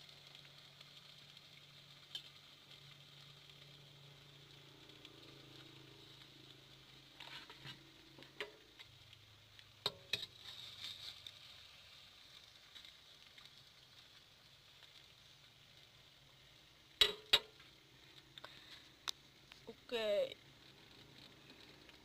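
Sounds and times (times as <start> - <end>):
food sizzling in a wok: 0.0 - 22.0
metal spatula clicking on pan: 17.0 - 17.6.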